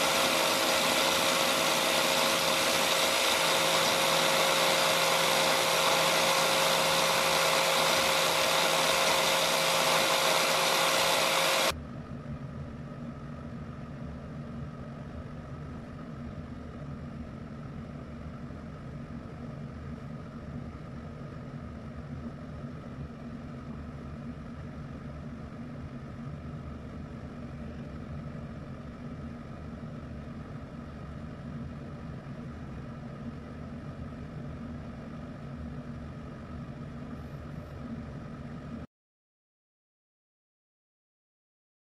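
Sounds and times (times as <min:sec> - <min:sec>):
angle grinder whining: 0:00.0 - 0:11.7.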